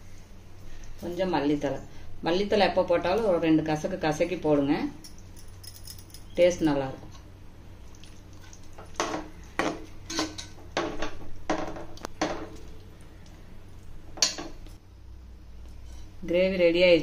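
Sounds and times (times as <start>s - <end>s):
metal spoon scraping cooking pan: 15.8s - 16.2s.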